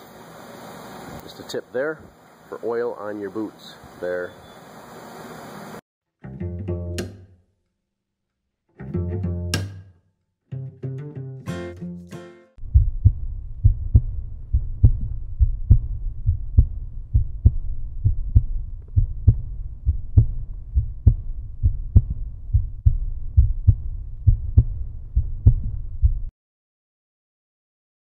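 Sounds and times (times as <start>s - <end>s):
deep bass thumping beat: 12.6s - 26.3s.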